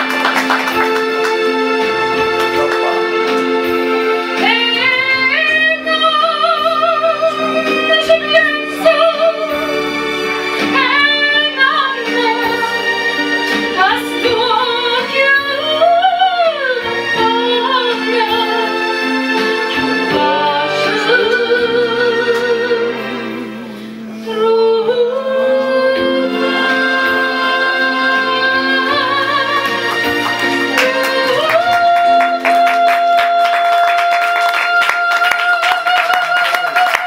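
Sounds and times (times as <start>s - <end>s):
instrumental accompaniment: 0.0s - 37.0s
woman singing into microphone: 4.4s - 9.9s, 10.6s - 37.0s.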